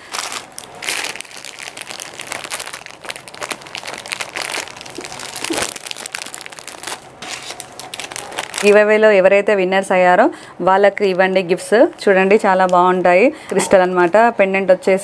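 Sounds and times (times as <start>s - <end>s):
plastic packets rustling: 0.0s - 9.0s.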